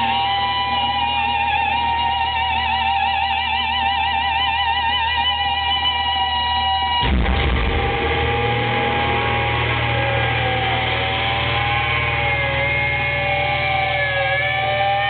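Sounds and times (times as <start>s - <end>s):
distorted electric guitar: 0.0s - 15.0s
metal band playing live: 4.2s - 15.0s
crashing hit: 7.0s - 12.4s
bass and drums rumble: 7.0s - 15.0s.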